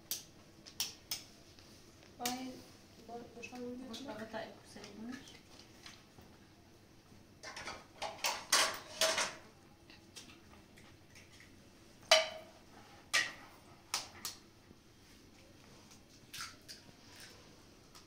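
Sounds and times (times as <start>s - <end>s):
dishes and utensils clinking: 7.4s - 9.4s, 12.1s - 13.4s.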